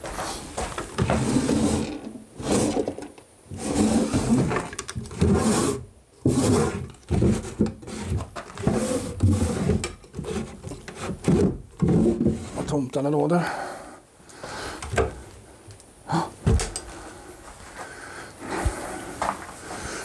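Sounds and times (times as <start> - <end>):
drawers scraping open and shut: 0.2 - 12.8.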